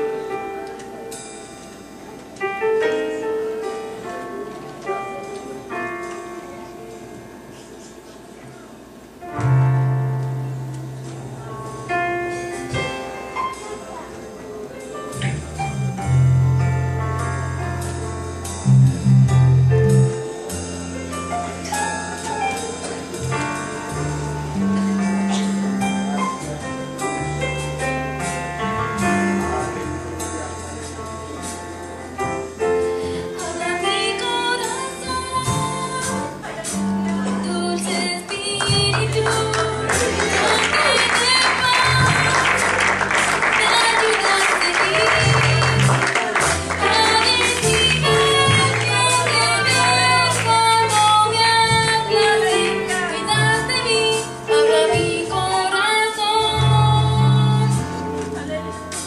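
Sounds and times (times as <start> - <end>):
worship music: 9.0 - 55.6
instrumental accompaniment with bass: 9.0 - 59.0
person singing: 43.6 - 58.6.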